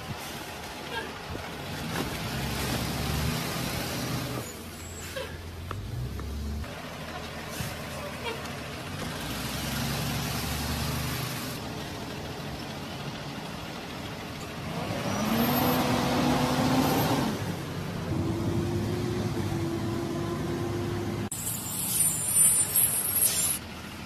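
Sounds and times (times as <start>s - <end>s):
bus engine revving: 0.1s - 21.6s.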